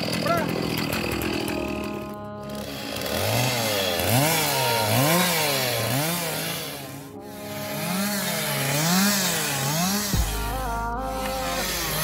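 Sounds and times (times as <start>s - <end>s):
chainsaw revving cutting wood: 0.0s - 12.0s.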